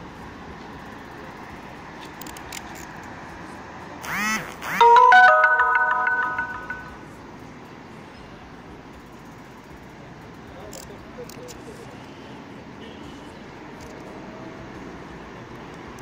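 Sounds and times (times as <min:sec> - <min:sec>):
road traffic hum: 0:00.0 - 0:04.8, 0:05.7 - 0:16.0
electronic jingle: 0:04.8 - 0:07.0.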